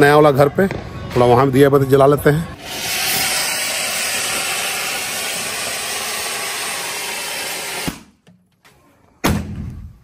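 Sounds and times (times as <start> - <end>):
fountain firework hissing: 2.6 - 8.0.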